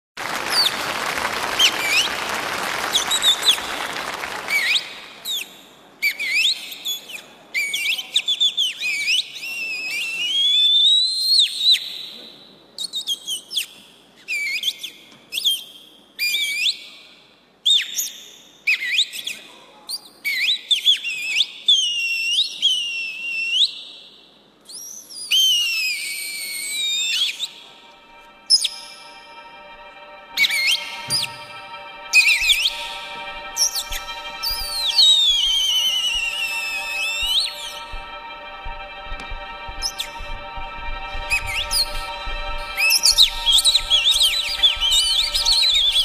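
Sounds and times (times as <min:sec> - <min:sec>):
high bird-like whistled calls: 0:24.7 - 0:38.5, 0:41.2 - 0:46.0
underlying noise: 0:25.8 - 0:46.0.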